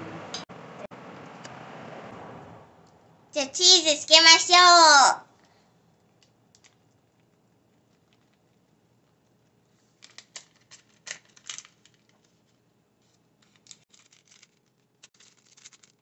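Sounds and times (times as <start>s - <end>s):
plastic packet crinkling: 13.4s - 16.0s.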